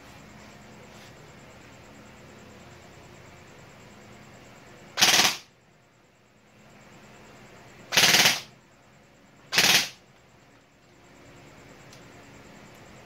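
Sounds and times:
airsoft rifle full-auto bursts: 5.0 - 5.5, 7.9 - 8.5, 9.5 - 10.0.

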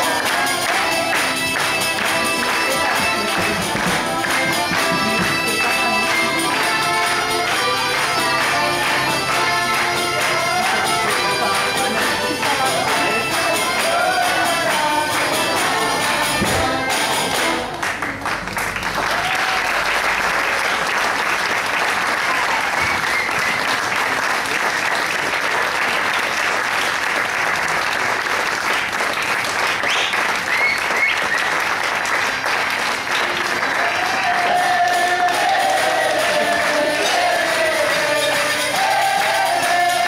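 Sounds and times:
music with singing: 0.0 - 17.6, 33.6 - 40.0
audience applauding: 0.0 - 40.0
shouts and whistles: 22.6 - 23.8, 29.9 - 31.6.

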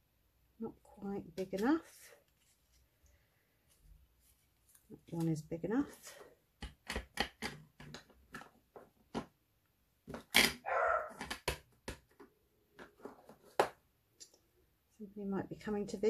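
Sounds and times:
acrylic blocks clicking and tapping: 6.6 - 9.3
dog bark: 10.6 - 11.2.

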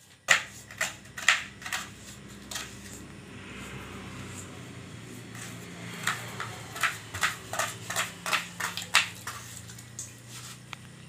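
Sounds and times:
knife chopping on wooden board: 0.3 - 2.8, 5.3 - 9.4.

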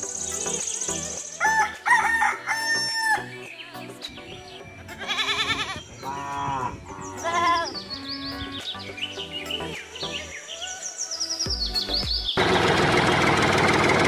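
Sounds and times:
light background music: 0.0 - 12.4
rooster crowing: 1.4 - 3.3
wavering animal calls: 4.8 - 8.7.

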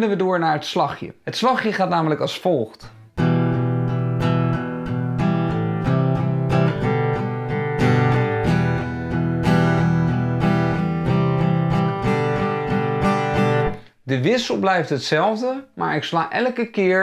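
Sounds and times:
acoustic guitar strumming: 3.0 - 13.8.

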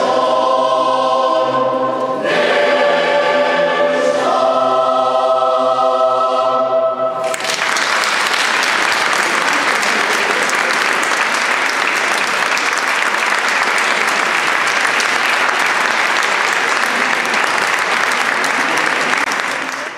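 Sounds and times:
audience applauding: 7.2 - 19.9.

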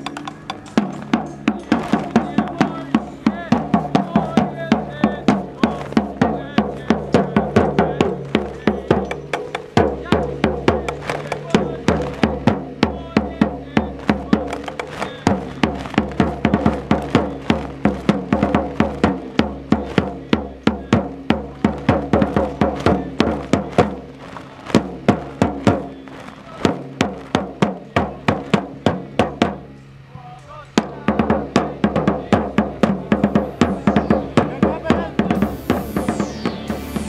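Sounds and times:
drums marching rhythm: 0.0 - 37.0
held pitched notes: 32.8 - 37.0.

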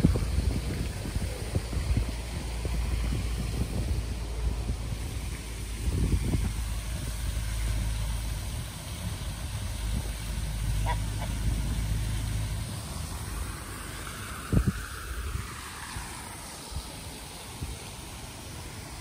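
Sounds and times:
wind rumble on microphone: 0.0 - 18.0
duck call: 10.8 - 11.5.

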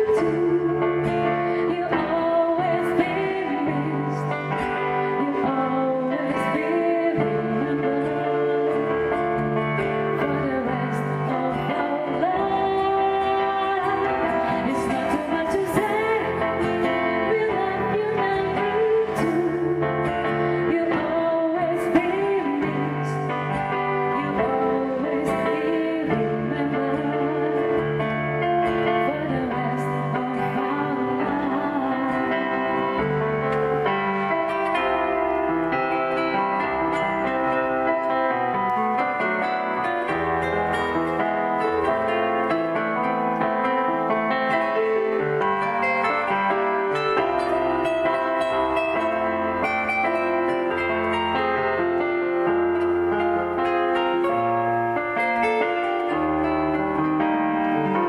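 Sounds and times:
woman singing pop ballad: 0.0 - 33.1
acoustic guitar: 0.0 - 58.0
keyboard playing piano: 0.0 - 58.0.

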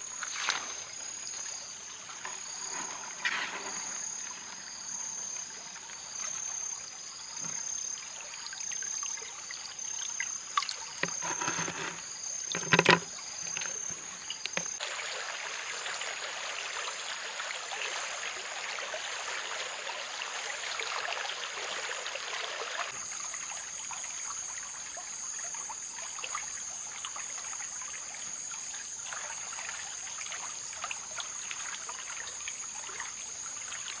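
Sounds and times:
high-pitched insect trill: 0.0 - 14.8
creek water babbling over stones: 0.0 - 34.0.

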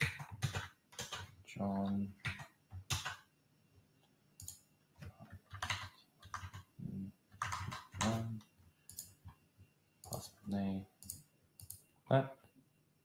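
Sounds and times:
computer keyboard keystrokes: 0.0 - 1.3, 2.2 - 3.2, 4.4 - 4.6, 5.3 - 6.7, 7.4 - 9.2.

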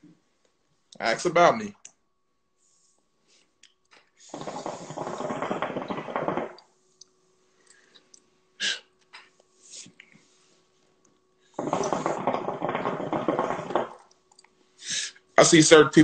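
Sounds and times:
hookah water bubbling: 4.2 - 7.2, 11.5 - 14.4
sharp puff of breath: 8.6 - 8.8, 14.8 - 15.2
person exhaling: 8.6 - 8.9, 14.8 - 15.2.

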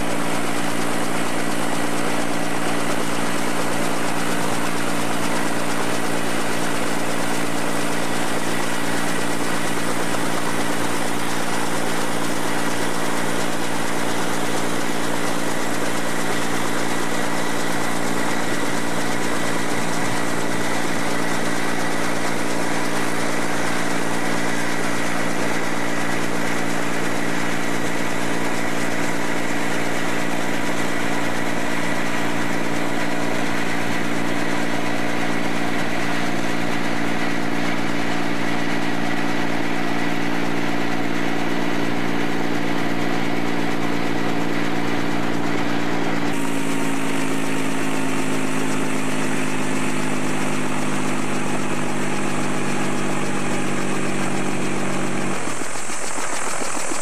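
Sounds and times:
helicopter engine and rotors: 0.0 - 57.0.

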